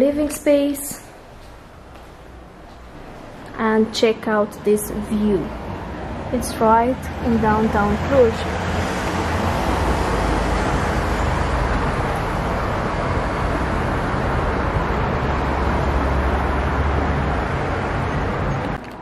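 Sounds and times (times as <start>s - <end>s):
city traffic noise: 0.0s - 19.0s.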